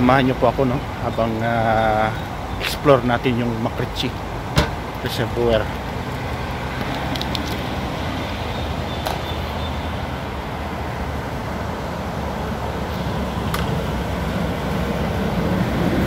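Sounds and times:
faint clicks: 6.8 - 7.6.

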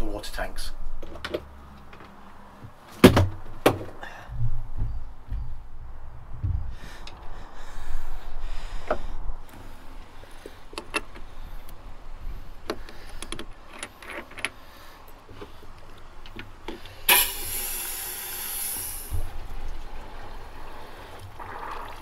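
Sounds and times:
water gushing from hose nozzle: 17.1 - 22.0.

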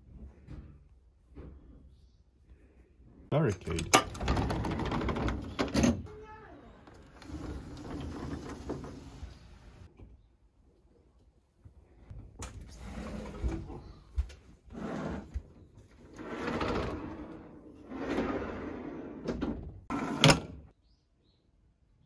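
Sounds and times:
metal shutter rolling along track: 6.8 - 9.5.

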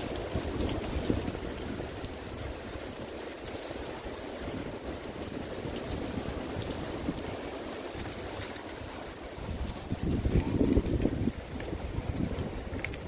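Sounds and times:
wind buffeting microphone: 0.0 - 13.0
faint ticks: 10.3 - 13.0.

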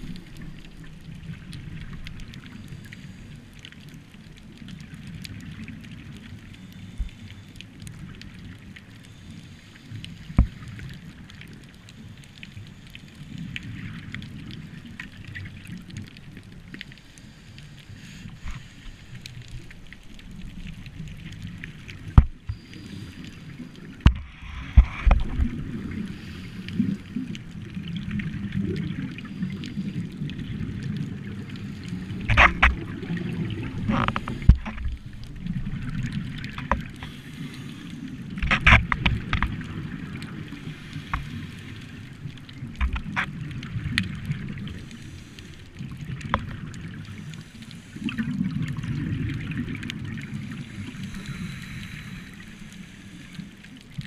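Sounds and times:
underwater regulator bubbles: 23.5 - 54.0.

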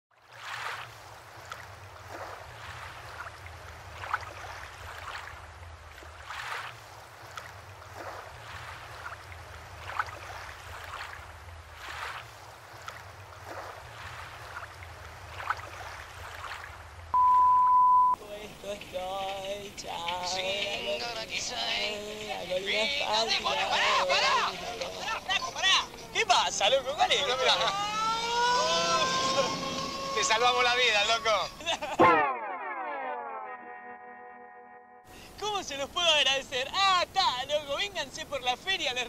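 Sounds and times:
sea surf washing in: 0.2 - 32.0
low hum: 16.7 - 18.2, 27.1 - 35.1
test-card tone beep: 17.2 - 18.2.

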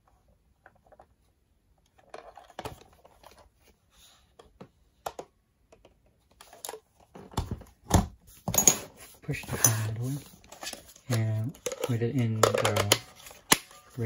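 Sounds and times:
plastic toys clicking and knocking: 10.4 - 14.0.

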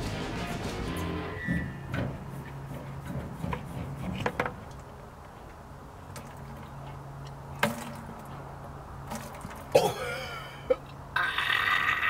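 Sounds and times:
low hum: 0.0 - 4.8
hose and bucket knocks and clicks: 1.9 - 4.9, 7.6 - 8.3.

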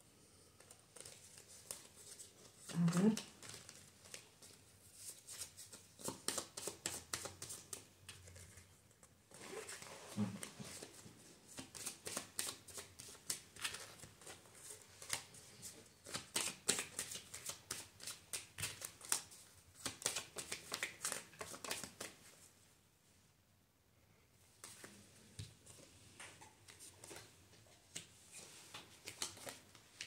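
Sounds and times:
cards being shuffled: 0.6 - 9.0, 11.6 - 15.3, 16.0 - 22.2, 27.9 - 30.0.

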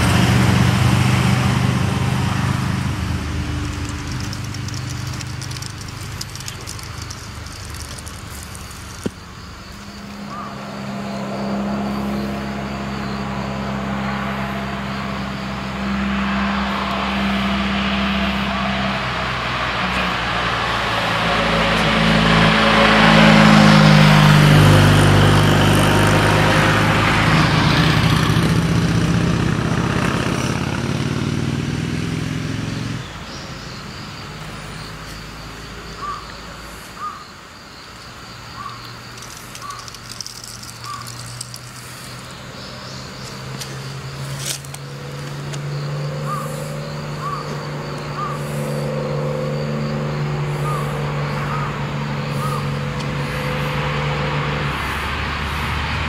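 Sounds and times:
sports car engine passing: 0.0 - 36.7, 38.5 - 56.0
car engine approaching: 0.0 - 56.0
bird chirps: 33.0 - 44.4, 45.3 - 49.8, 50.5 - 52.8.

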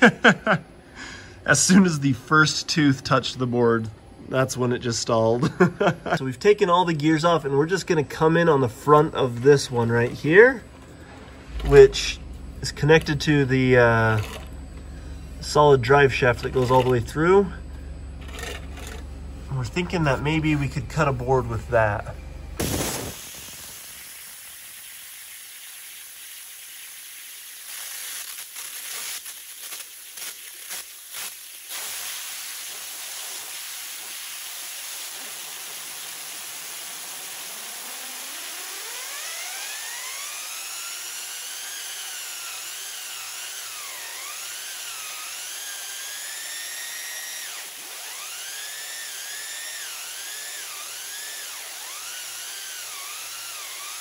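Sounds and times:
spinning chain whining: 13.9 - 14.6, 18.2 - 19.1
waterjet hissing: 22.6 - 40.9
waterjet sputtering bursts: 22.6 - 51.2.

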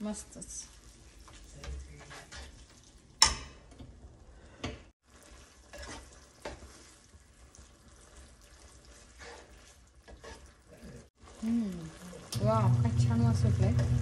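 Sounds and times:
sauce sizzling in a wok: 0.0 - 3.2, 5.0 - 14.0
spatula stirring: 0.0 - 3.6, 5.0 - 12.4.

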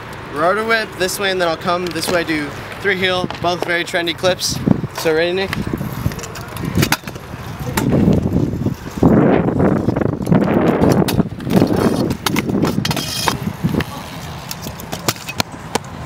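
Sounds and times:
scooter wheels rolling on concrete: 0.0 - 16.0
scooter deck clacking on concrete: 5.0 - 8.3, 10.2 - 15.9.

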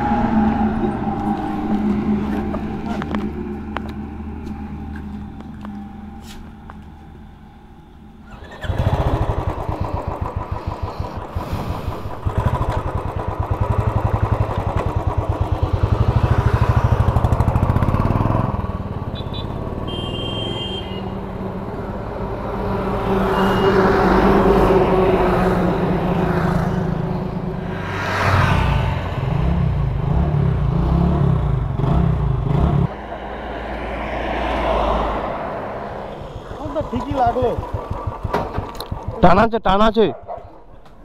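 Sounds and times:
motorcycle engine running: 8.3 - 19.8, 36.4 - 39.5.

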